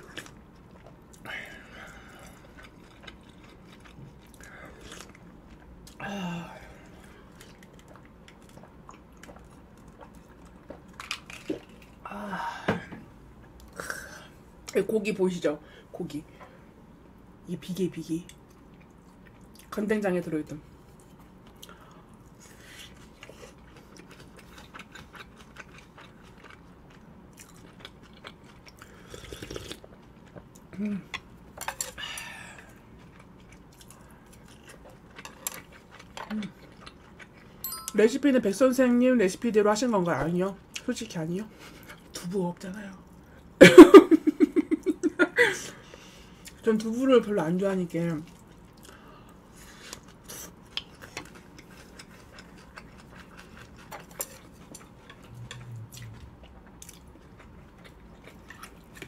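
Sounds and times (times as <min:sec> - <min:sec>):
closed-mouth hum: 0:55.0 - 0:56.8.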